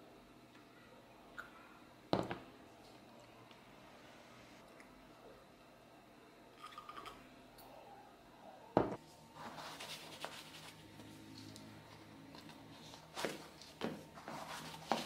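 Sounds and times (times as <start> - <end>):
feet scuffing into sneakers: 12.8 - 15.0.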